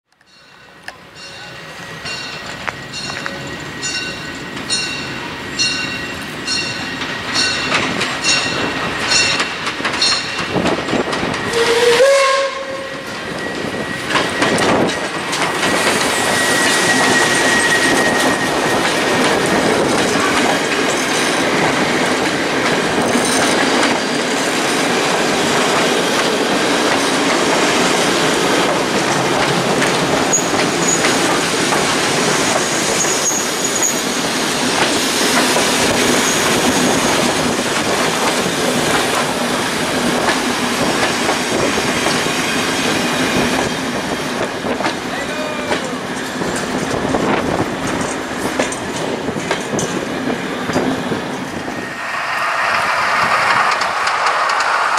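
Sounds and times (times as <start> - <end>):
train wheels on rails: 0.1 - 54.9
wheels clicking over rail joints: 6.2 - 12.0, 25.1 - 42.3, 44.3 - 51.5
high wheel squeal: 10.1 - 21.2, 30.3 - 31.2, 32.4 - 34.4, 51.5 - 54.9.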